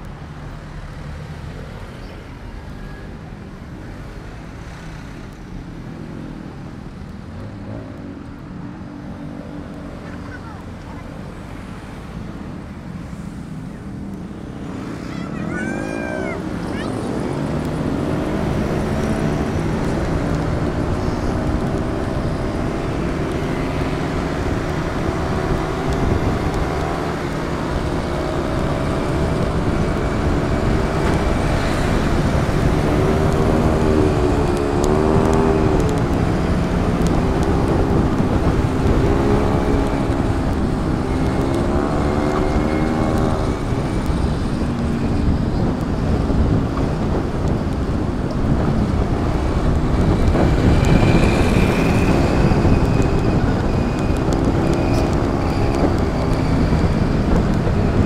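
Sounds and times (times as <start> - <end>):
wind and road noise: 0.0 - 58.0
motorcycle engine revving: 17.0 - 47.5.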